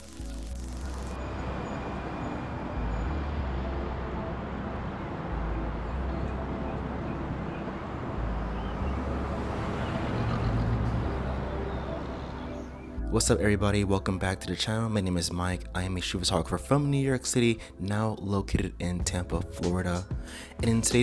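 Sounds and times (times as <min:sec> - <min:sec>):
city traffic noise: 0:00.0 - 0:13.0
deep bass line music: 0:00.0 - 0:21.0.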